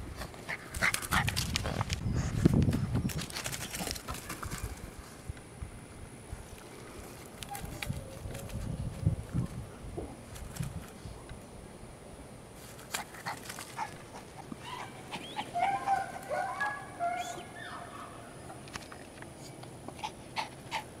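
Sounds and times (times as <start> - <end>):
puppy whining and yipping: 14.6 - 18.0.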